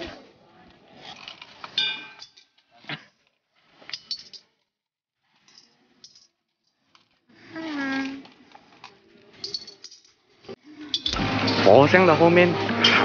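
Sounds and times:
coins clinking into metal bowls: 0:01.8 - 0:02.6, 0:03.9 - 0:04.5, 0:05.4 - 0:06.9, 0:09.3 - 0:11.6.

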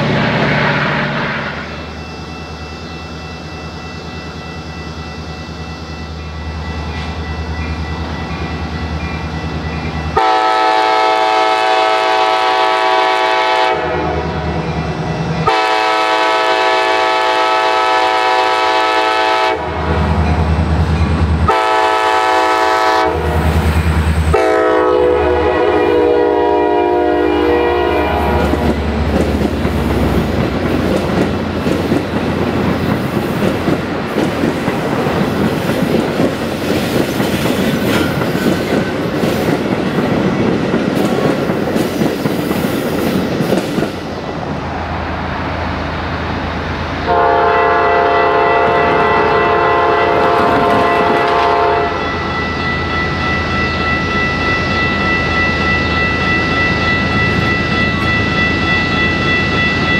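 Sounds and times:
train cars rumbling by: 0:00.0 - 0:59.9
train horn blasts: 0:10.1 - 0:14.6, 0:15.4 - 0:20.1, 0:21.4 - 0:23.6, 0:24.3 - 0:28.8, 0:47.0 - 0:59.0
wheels clacking over rails: 0:28.3 - 0:44.0.

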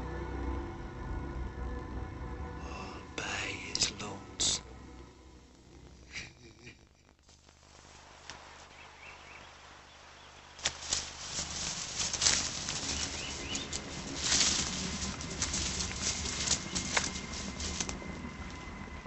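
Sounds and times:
leaves and branches rustling: 0:05.5 - 0:19.0.

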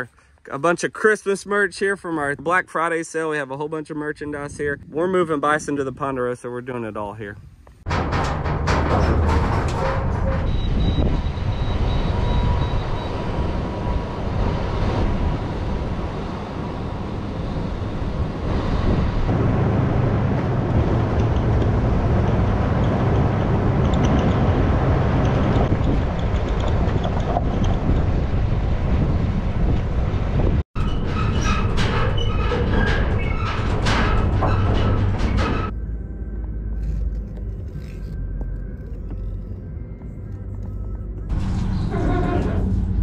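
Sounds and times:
truck engine and road noise: 0:00.0 - 0:43.0
wind on microphone: 0:09.3 - 0:30.7.

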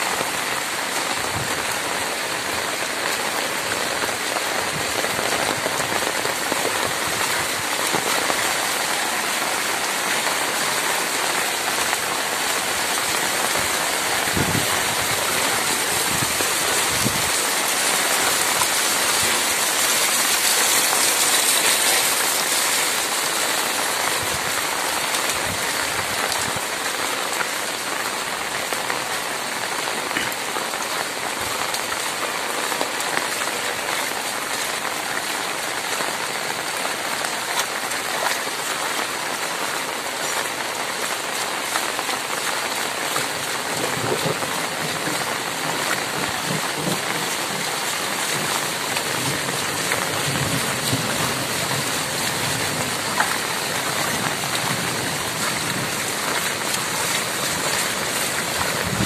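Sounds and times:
heavy rain pouring on flooded street: 0:00.0 - 0:59.0.

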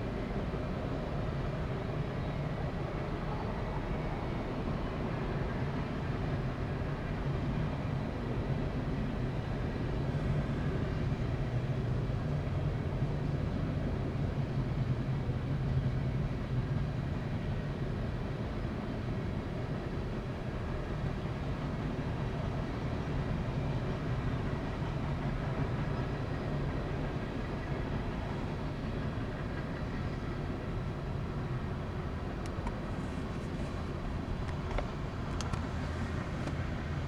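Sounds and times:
train wheels rolling on rails: 0:19.6 - 0:37.0.

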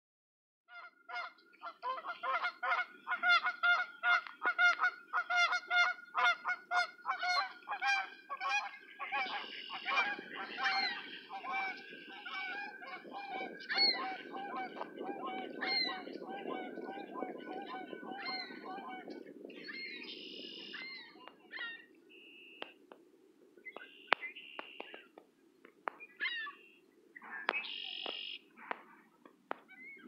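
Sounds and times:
geese honking: 0:00.7 - 0:22.7.

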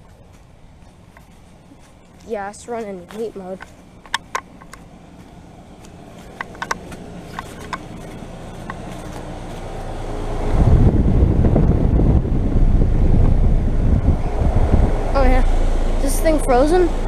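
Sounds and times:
footsteps in dry leaves: 0:00.0 - 0:10.2
fan air rushing across microphone: 0:00.0 - 0:17.0
heat pump unit humming: 0:00.0 - 0:17.0.

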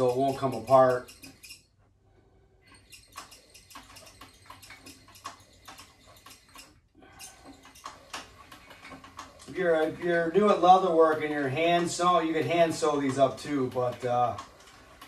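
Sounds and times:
sewing machine needle clicks: 0:00.0 - 0:01.6, 0:02.7 - 0:09.6.

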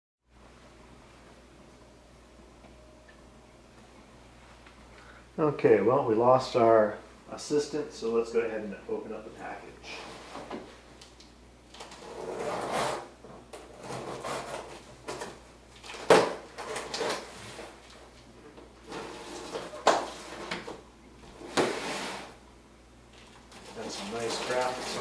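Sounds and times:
cardboard and tape rustling: 0:13.6 - 0:22.3, 0:23.1 - 0:25.0.

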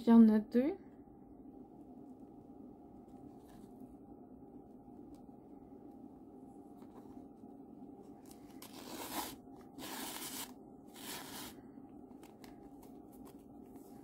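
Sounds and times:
scraping rustles of foam mask: 0:08.2 - 0:11.6.

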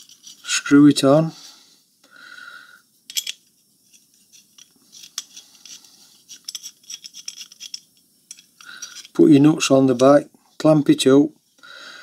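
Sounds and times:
metal parts clinking: 0:00.0 - 0:00.6, 0:03.1 - 0:09.3.

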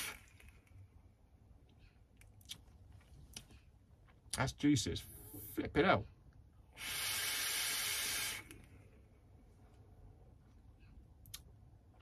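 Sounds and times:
air hissing through vape atomiser: 0:00.0 - 0:00.6, 0:06.7 - 0:08.7.

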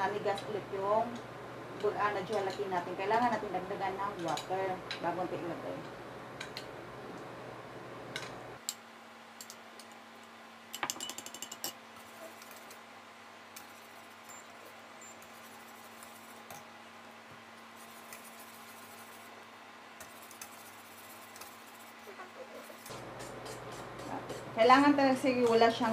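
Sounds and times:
faint steady hum: 0:00.0 - 0:25.9
metallic clinks: 0:10.8 - 0:11.8.

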